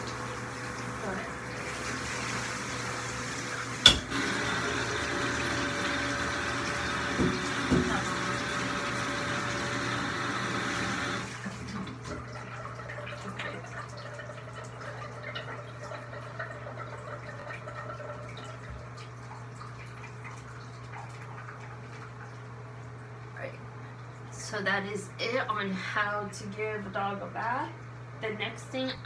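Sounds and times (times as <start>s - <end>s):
water drips and splashes: 11.2s - 23.4s.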